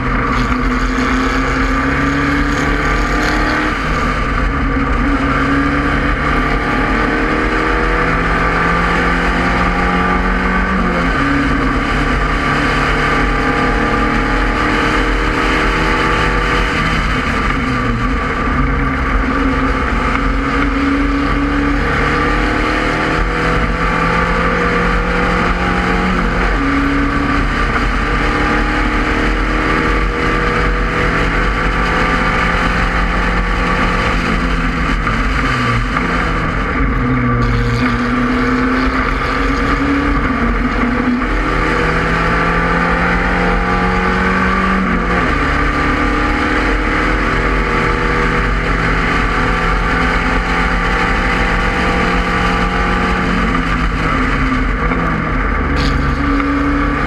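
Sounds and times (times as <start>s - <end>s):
racing car engine: 0.0s - 57.0s
wind rush: 25.2s - 42.6s.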